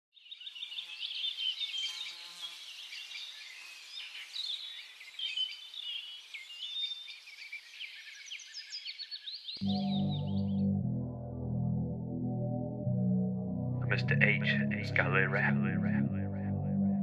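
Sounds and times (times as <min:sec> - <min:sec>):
small birds chirping: 0:00.2 - 0:10.6.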